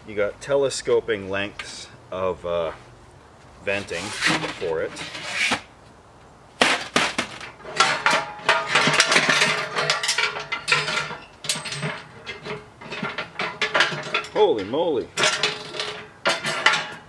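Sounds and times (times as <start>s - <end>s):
metal stove parts clanking: 6.6s - 17.0s.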